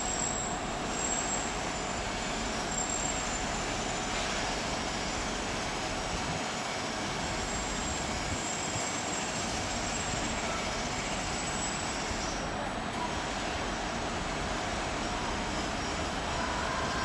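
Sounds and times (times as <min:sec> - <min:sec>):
city traffic hum: 0:00.0 - 0:17.0.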